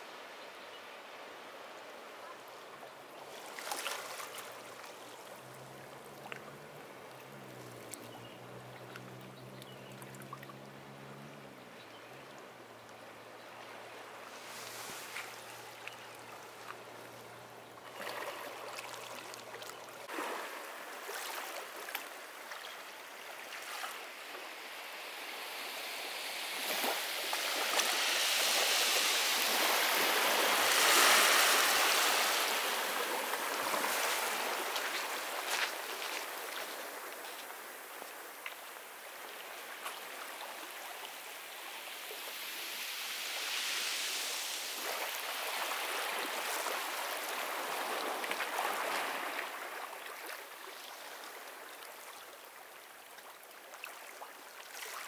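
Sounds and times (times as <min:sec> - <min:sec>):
sea waves breaking on beach: 0:03.2 - 0:11.6, 0:13.6 - 0:17.2, 0:17.9 - 0:52.0
low engine hum: 0:05.3 - 0:14.1.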